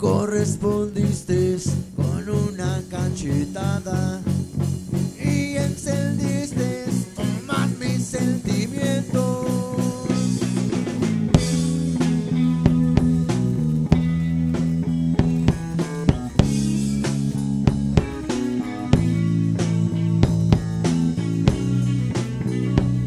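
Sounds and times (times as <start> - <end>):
man singing: 0.0 - 4.4, 5.1 - 10.6
bass guitar: 0.0 - 23.0
distorted electric guitar: 0.0 - 23.0
drum kit beat: 0.0 - 23.0.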